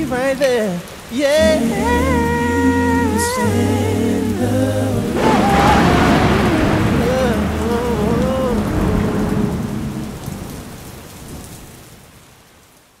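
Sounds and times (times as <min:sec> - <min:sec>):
steady rain: 0:00.0 - 0:13.0
low thunder rumble: 0:04.9 - 0:11.8.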